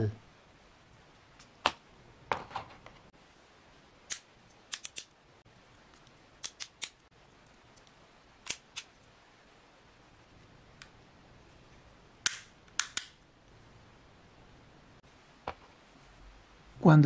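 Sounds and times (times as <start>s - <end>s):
plastic clicks and snaps: 4.1s - 5.1s, 5.9s - 7.0s, 7.7s - 8.9s, 12.2s - 13.2s.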